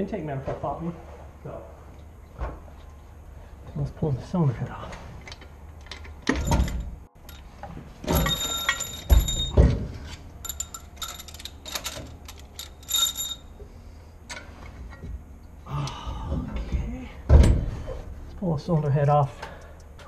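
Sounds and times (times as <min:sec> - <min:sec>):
metal tools clanking: 0:05.2 - 0:13.6.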